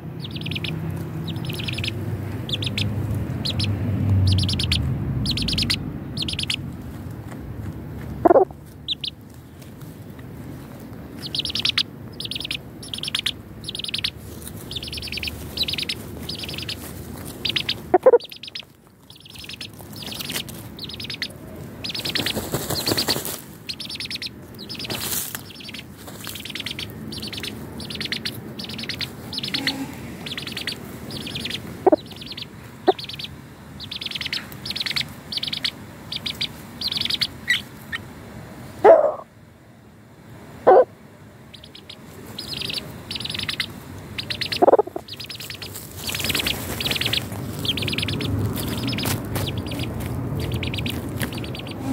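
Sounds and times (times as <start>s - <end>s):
chicks peeping: 0.0s - 6.7s, 8.2s - 9.2s, 11.1s - 38.1s, 41.5s - 51.9s
birds scratching in dirt: 0.2s - 38.0s, 41.6s - 51.9s
lower chicken calls: 11.2s - 38.0s, 38.8s - 39.3s, 40.7s - 40.9s, 41.5s - 51.9s.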